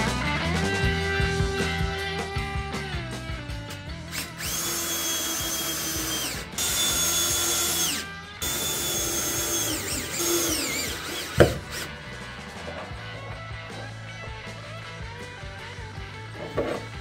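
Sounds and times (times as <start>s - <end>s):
cordless drill whining: 4.1s - 12.0s.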